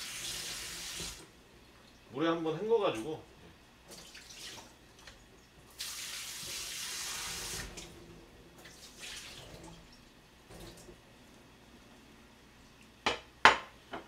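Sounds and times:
kitchen tap running: 0.0s - 1.3s, 3.8s - 11.0s
water splashes: 8.6s - 10.9s.

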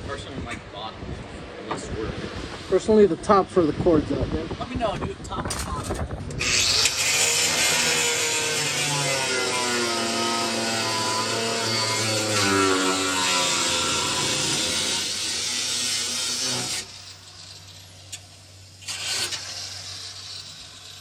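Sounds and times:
angle grinder cutting sheet metal: 6.3s - 21.0s.

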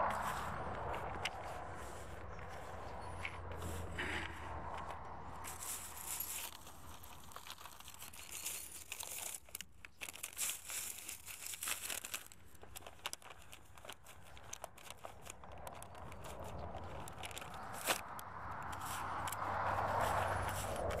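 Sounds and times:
plastic packet crinkling: 4.5s - 21.0s.

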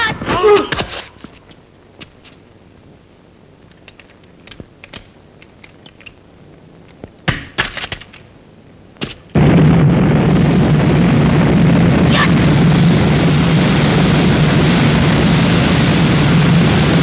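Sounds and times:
flamethrower roaring: 9.3s - 17.0s.

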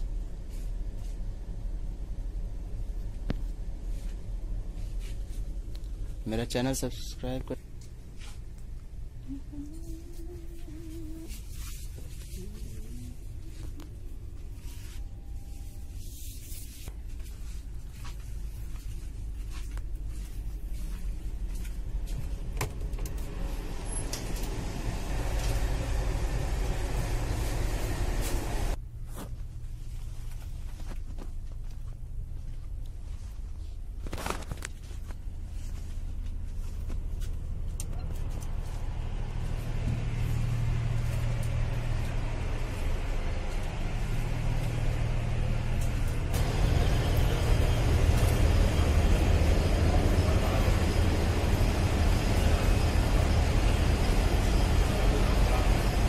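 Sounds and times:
train coach rumble and rattle: 0.0s - 56.0s
wheels running on track: 21.6s - 28.8s, 37.8s - 56.0s.

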